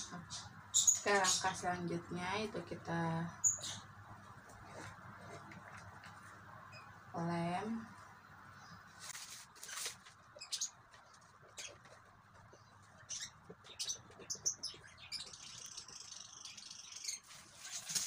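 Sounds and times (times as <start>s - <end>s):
plastic sheet rustling: 9.0s - 10.2s, 17.2s - 18.0s.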